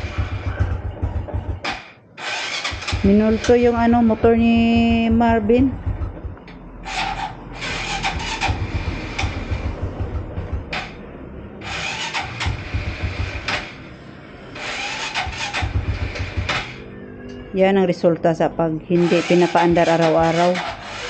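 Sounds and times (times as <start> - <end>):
motorcycle engine cranking: 0.0 - 4.2, 5.8 - 13.9, 14.5 - 16.9, 19.0 - 21.0.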